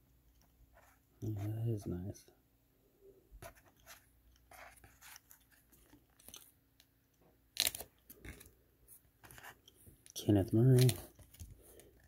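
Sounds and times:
cards rustling as shuffled: 0:07.6 - 0:12.0.

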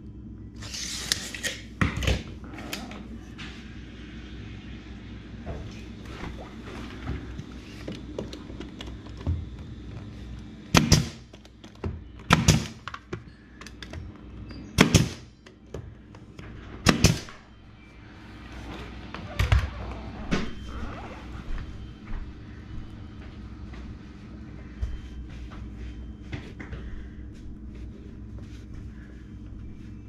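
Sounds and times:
nail gun firing into wood: 0:10.8 - 0:11.2, 0:12.3 - 0:12.8.

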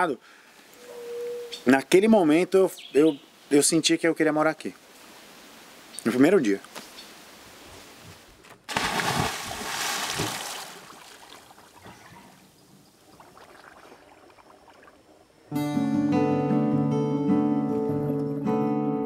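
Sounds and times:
water splashing and sloshing: 0:07.6 - 0:15.5.

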